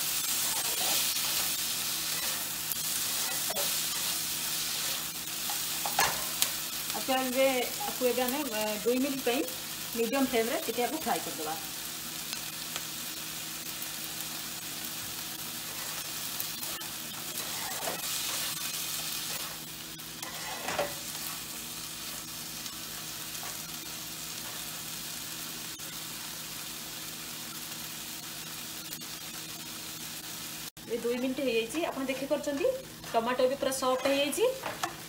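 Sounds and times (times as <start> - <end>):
vegetables sizzling in hot oil: 0.0 - 35.0
spatula scraping pan: 15.6 - 22.2.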